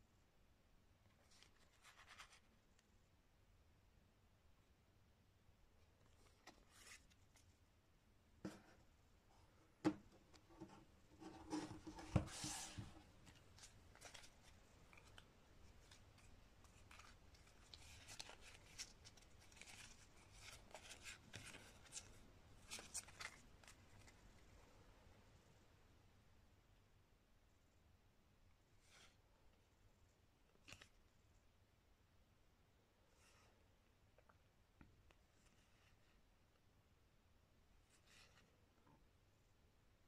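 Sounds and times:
cards knocking and sliding: 9.8 - 15.2
playing cards clicking and rustling: 12.1 - 24.2.

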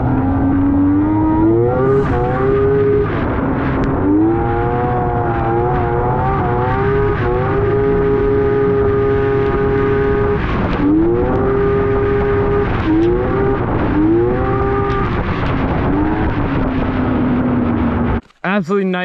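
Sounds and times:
snowmobile engine revving: 0.0 - 16.4.

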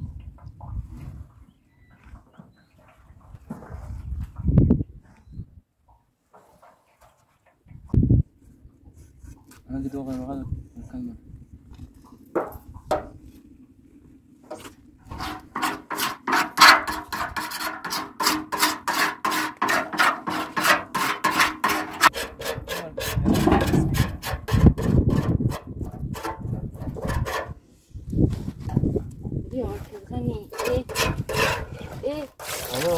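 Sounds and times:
dull low rubbing: 11.4 - 32.1
knife scraping metal basin: 14.5 - 27.6, 30.4 - 32.9.

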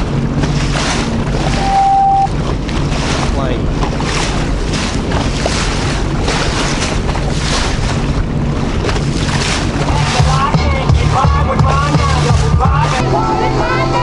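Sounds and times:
water slapping against hull: 0.0 - 13.0
watercraft engine humming: 0.0 - 14.0
wind buffeting microphone: 2.3 - 12.6.

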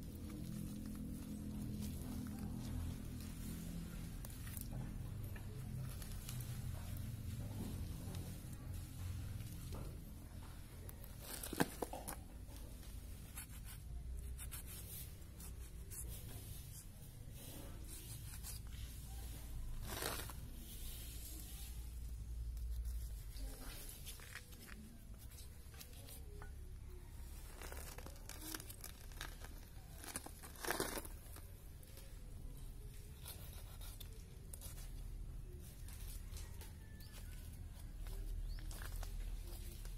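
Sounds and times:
hide tearing in scratchy rips: 19.6 - 20.6, 27.4 - 31.4.

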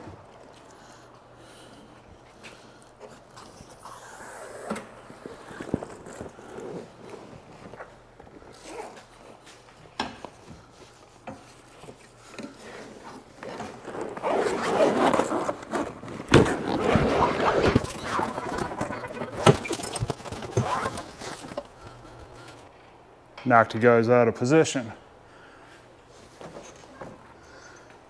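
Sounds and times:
canvas fabric rustling and scraping: 4.4 - 9.8, 10.6 - 22.6.

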